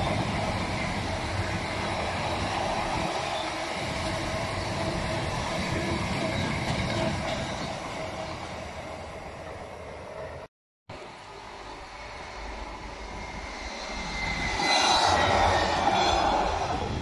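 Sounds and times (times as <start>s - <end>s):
freight train wheels on rail: 0.0s - 17.0s.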